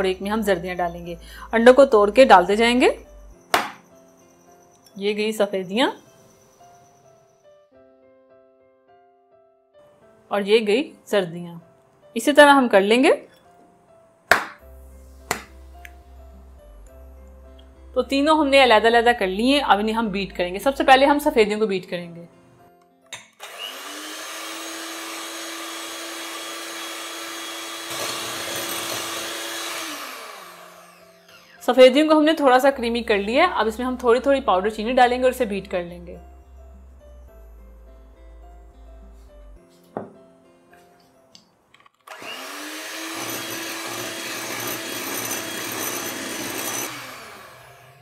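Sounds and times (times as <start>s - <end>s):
electric hand mixer running: 23.4s - 31.7s, 42.1s - 48.0s.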